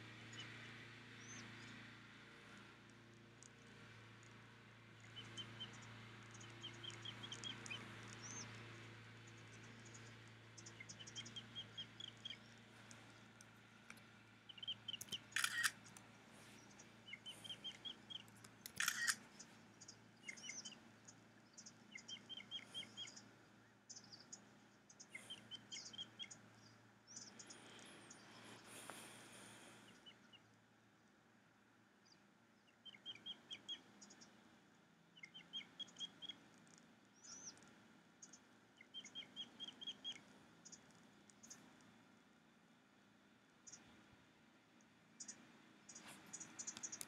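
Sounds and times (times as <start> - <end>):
faint low hum: 0.0 - 47.0
rasping bird calls: 14.5 - 16.0, 16.6 - 20.8
quick high bird chirps: 14.6 - 15.9, 16.6 - 19.2.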